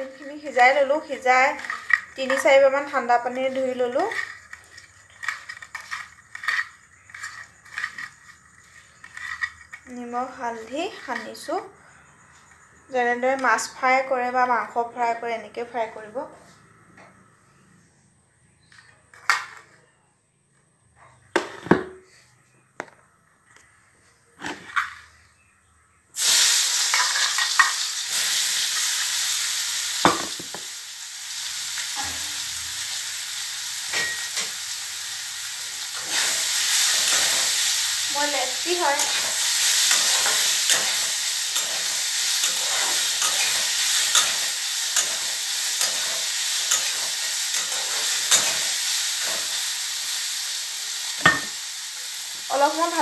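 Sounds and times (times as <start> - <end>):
food sizzling in hot oil: 0.0 - 14.8, 26.2 - 53.0
stirring clicks and scrapes: 1.4 - 11.5.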